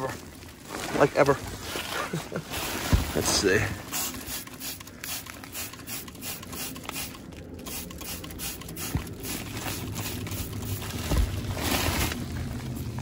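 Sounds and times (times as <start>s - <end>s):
low steady hum: 0.0s - 13.0s
spray bottle hissing spritzes: 3.9s - 10.9s.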